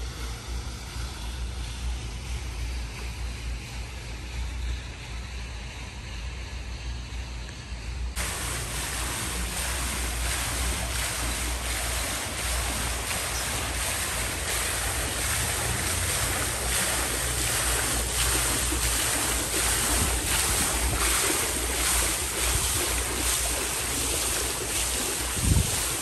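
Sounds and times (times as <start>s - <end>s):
fountain water splashing: 8.2s - 26.0s
wind buffeting microphone: 8.2s - 26.0s.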